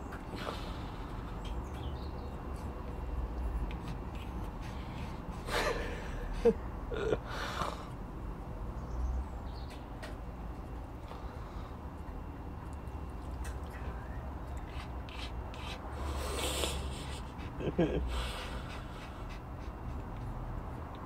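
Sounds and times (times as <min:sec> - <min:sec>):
dog snorting: 0:14.5 - 0:21.0.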